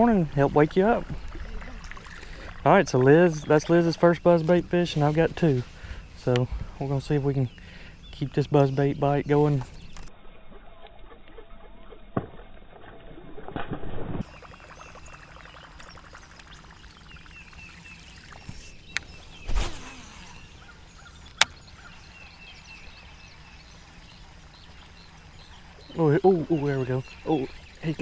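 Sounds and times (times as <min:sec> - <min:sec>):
lure gurgling across water: 0:01.0 - 0:02.7.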